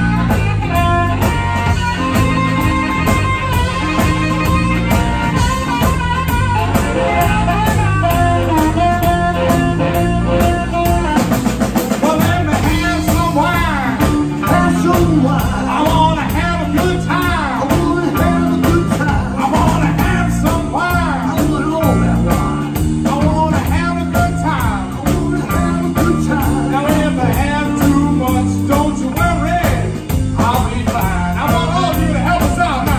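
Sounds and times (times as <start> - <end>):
bass guitar: 0.0 - 32.9
blues harmonica: 0.0 - 32.9
drum kit: 0.0 - 32.9
electric guitar: 0.0 - 32.9.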